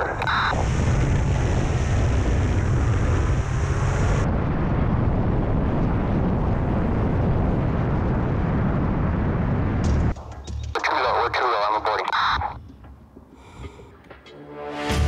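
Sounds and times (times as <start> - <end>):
propeller noise: 0.0 - 4.6, 9.8 - 13.2
rushing wind: 0.0 - 10.1.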